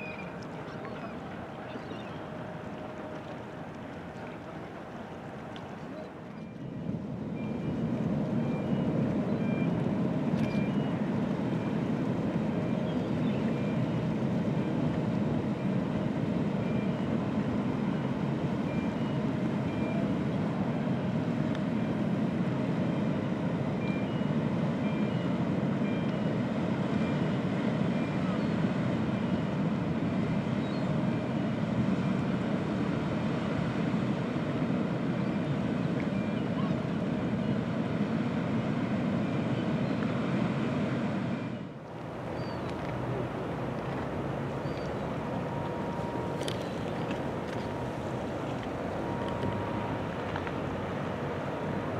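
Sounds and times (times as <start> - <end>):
ship machinery rumble: 0.0 - 41.0, 41.7 - 51.9
faint high beeps: 18.0 - 20.2, 44.6 - 47.0.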